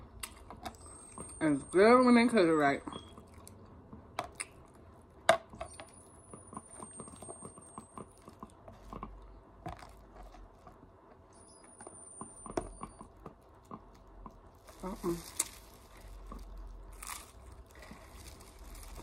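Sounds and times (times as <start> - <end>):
close chewing: 13.4 - 19.0.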